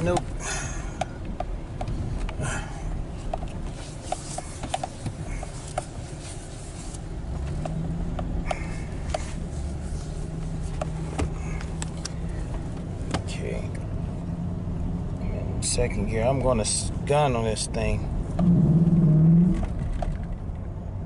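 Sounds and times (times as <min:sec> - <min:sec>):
pickup truck engine: 0:00.0 - 0:21.0
road rumble: 0:00.0 - 0:21.0
steady engine hum: 0:00.0 - 0:21.0
light clicks and rubbing: 0:03.2 - 0:13.4.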